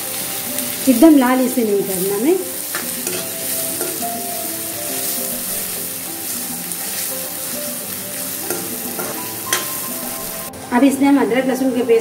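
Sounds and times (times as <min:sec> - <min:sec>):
onions sizzling in oil: 0:00.0 - 0:10.7
spatula scraping pan: 0:02.6 - 0:10.5.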